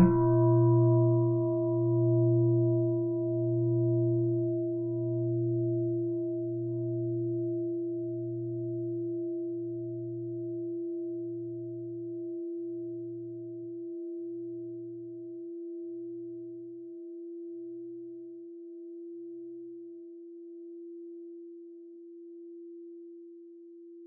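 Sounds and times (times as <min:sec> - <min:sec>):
low pulsing throb: 0:00.0 - 0:00.5
steady ringing tone: 0:00.0 - 0:00.6.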